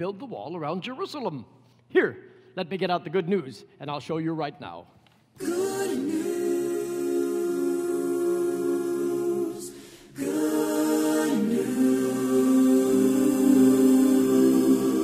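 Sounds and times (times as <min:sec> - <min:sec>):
a cappella choir singing: 0:05.4 - 0:15.0.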